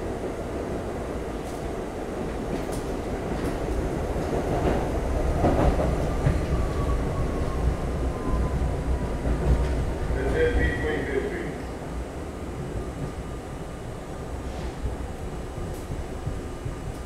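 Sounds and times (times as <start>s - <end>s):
subway train rumble: 0.0s - 17.0s.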